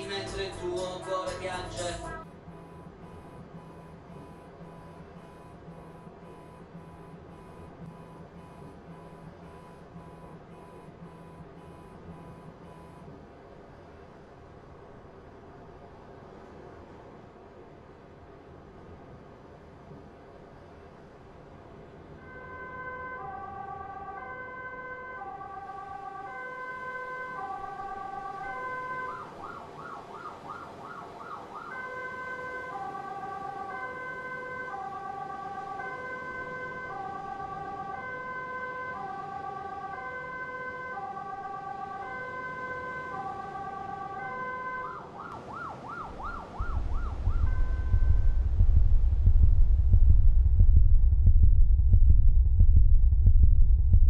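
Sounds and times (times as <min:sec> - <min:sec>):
two-tone emergency siren: 0:02.2 - 0:13.2, 0:22.1 - 0:49.1
loud low rumble: 0:46.6 - 0:54.0.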